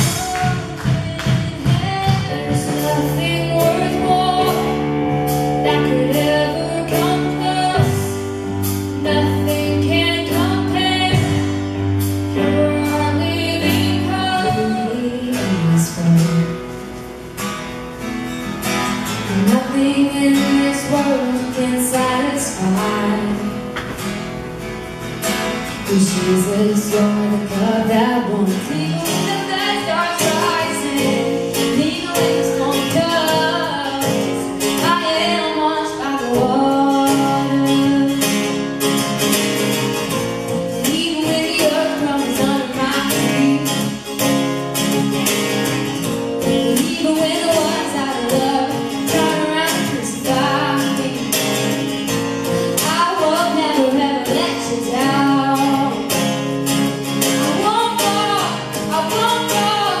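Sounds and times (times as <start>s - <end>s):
drum kit beat: 0.0s - 6.2s
woman singing: 0.0s - 16.7s, 19.2s - 23.8s, 25.8s - 38.8s, 40.5s - 44.3s, 46.0s - 56.5s, 57.2s - 60.0s
acoustic guitar strumming: 0.0s - 60.0s.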